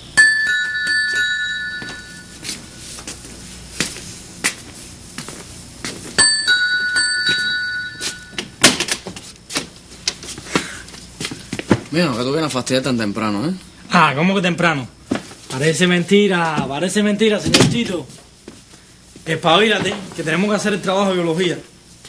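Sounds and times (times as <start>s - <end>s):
two-tone doorbell chiming: 0.1s - 2.5s, 6.2s - 8.4s.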